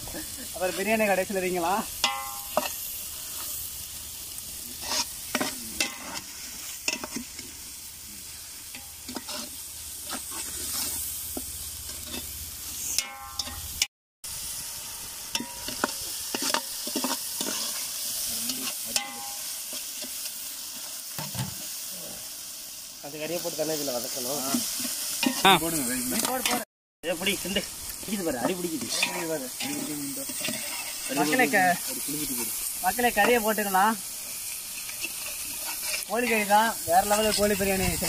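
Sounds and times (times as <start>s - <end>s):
food sizzling in oil: 0.0s - 38.0s
metal ladle scraping pot: 4.8s - 7.4s, 8.7s - 11.1s, 28.4s - 31.4s, 34.5s - 36.1s.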